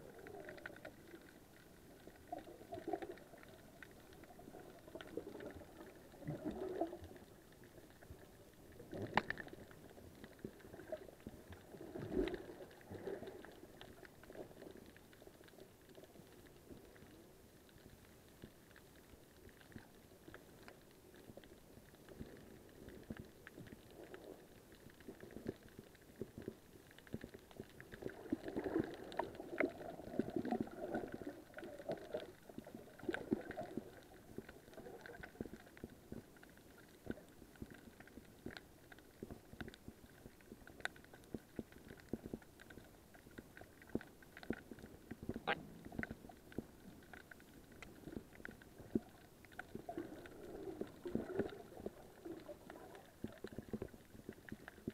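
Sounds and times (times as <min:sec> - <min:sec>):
underwater rumbling and gurgling: 0:00.0 - 0:54.9.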